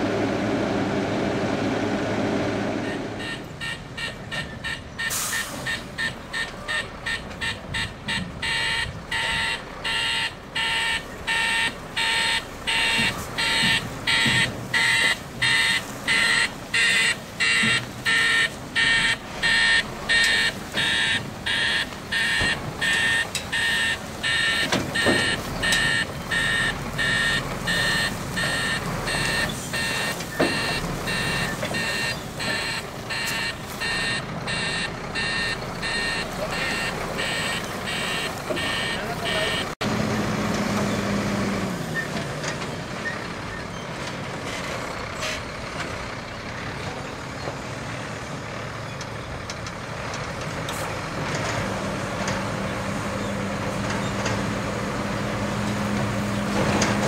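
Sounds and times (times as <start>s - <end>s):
diesel engine running: 0.0s - 57.0s
reversing alarm beeping: 2.8s - 39.8s.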